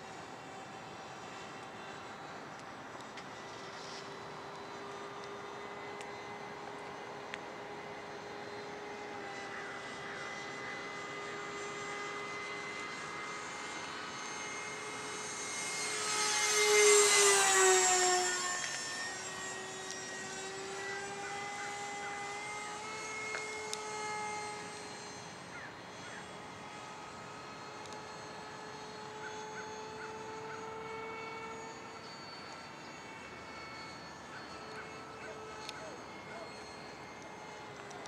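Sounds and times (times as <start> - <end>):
model jet fan whine: 0.0 - 38.0.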